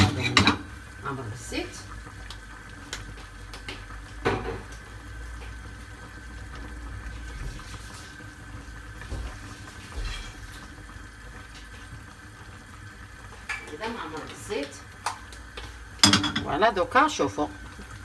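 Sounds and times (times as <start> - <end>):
cookware knocking: 0.0 - 0.6, 16.0 - 16.6
liquid cooking on stove: 0.0 - 18.0.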